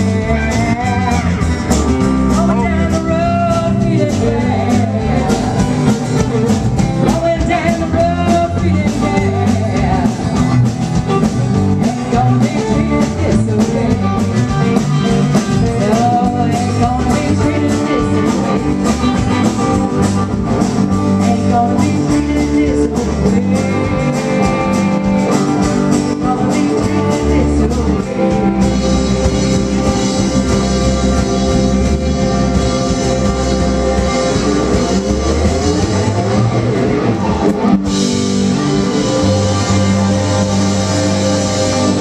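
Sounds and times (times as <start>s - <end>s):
woman singing: 0.0s - 1.3s, 2.3s - 6.0s, 7.0s - 10.6s, 11.8s - 19.4s, 21.1s - 28.8s
live band playing: 0.0s - 42.0s.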